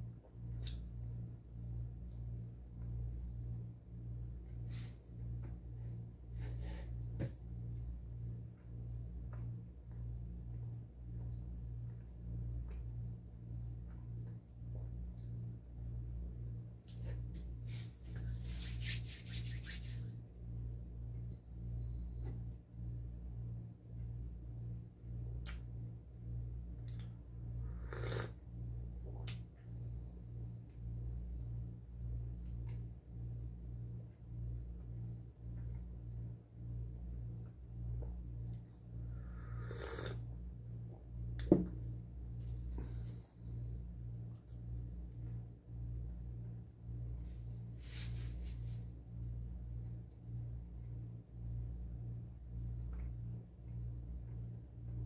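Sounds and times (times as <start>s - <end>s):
low steady hum: 0.0s - 55.0s
hands rubbing together: 17.7s - 20.2s
slurping sip from mug: 27.7s - 28.4s, 39.4s - 40.3s.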